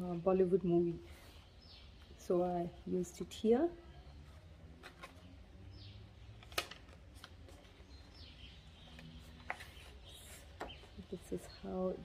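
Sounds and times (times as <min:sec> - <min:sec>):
paper pages turning: 0:08.9 - 0:10.9.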